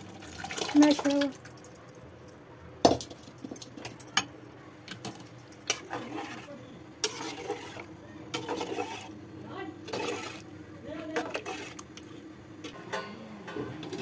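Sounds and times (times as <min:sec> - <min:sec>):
metal spoon scraping pot: 0:05.0 - 0:14.0.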